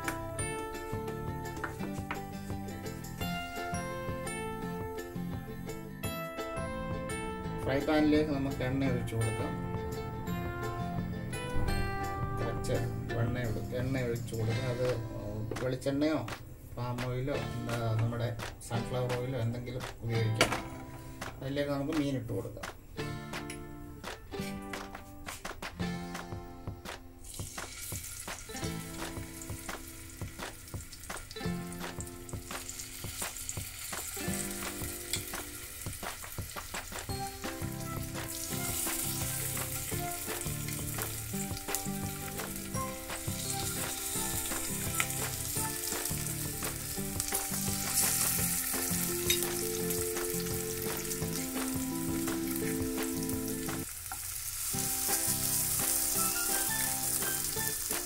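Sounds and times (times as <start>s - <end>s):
fish sizzling in hot oil: 27.2s - 58.0s.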